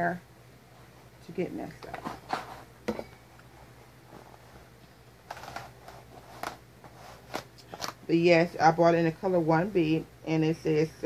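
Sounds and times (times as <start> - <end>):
packaging clicks and rustles: 5.2 - 6.6.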